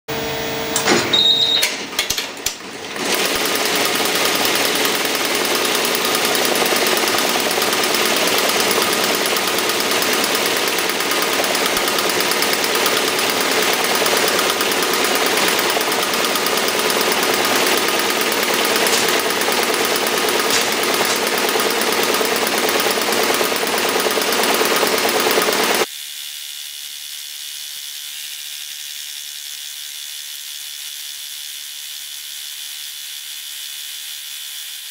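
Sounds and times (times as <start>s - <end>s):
embroidery machine rattling: 0.8s - 25.9s
irregular clicks: 3.4s - 25.9s.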